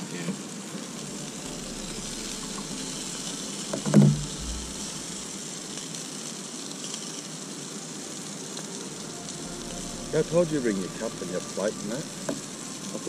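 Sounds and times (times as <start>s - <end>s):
food sizzling in frying pan: 0.0s - 13.0s
loud thump: 3.7s - 4.9s.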